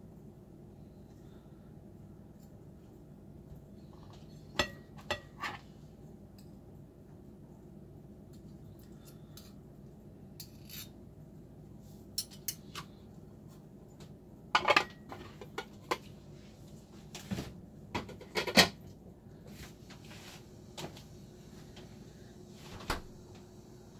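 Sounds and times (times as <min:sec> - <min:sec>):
cutlery scraping a ceramic plate: 0:04.0 - 0:05.6, 0:10.4 - 0:11.0.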